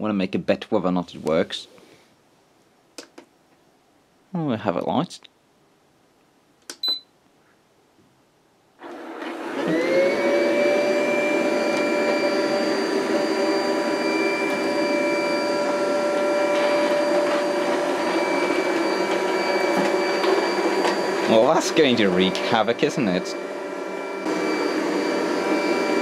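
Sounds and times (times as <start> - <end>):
robot vacuum running: 8.8 - 26.0
motor whine: 9.4 - 26.0.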